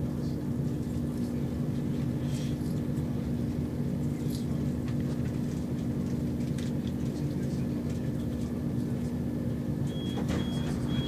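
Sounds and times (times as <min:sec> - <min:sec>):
diesel train engine hum: 0:00.0 - 0:11.0.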